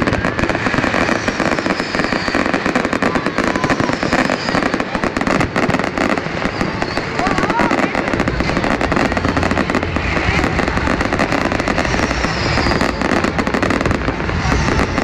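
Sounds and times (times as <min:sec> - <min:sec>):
fireworks cracks and bangs: 0:00.0 - 0:15.0.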